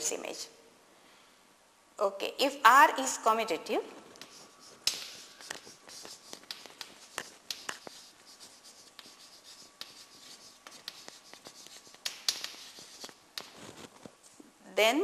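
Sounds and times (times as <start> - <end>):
chalk tapping and scratching: 4.1 - 14.0.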